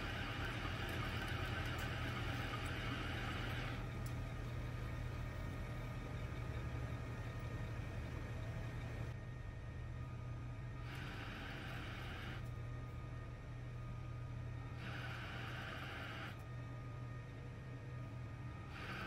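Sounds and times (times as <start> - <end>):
lathe humming: 0.0 - 9.2, 10.4 - 17.2.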